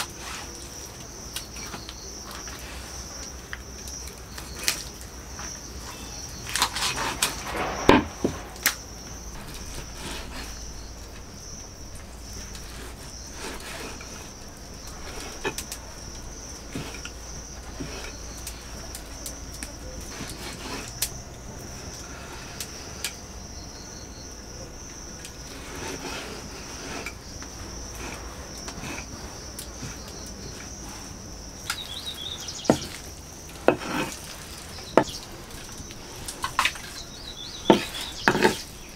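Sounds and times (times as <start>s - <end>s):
insects chirring: 0.0s - 38.9s.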